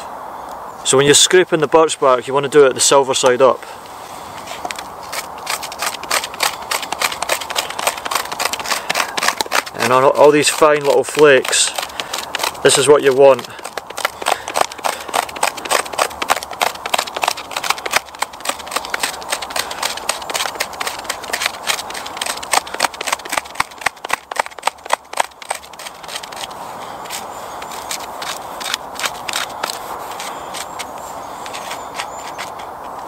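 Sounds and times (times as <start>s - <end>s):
knife scraping bark: 3.6s - 33.0s.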